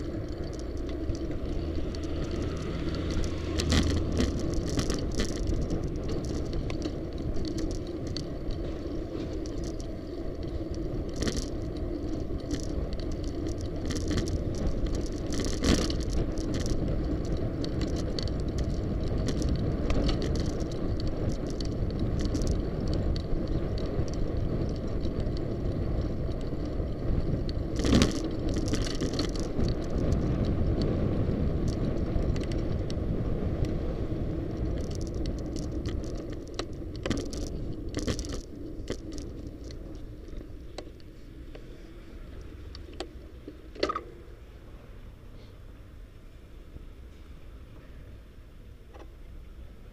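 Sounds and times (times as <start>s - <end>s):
bike and mount rattling: 0.0s - 44.4s
bicycle road rumble: 0.0s - 49.9s.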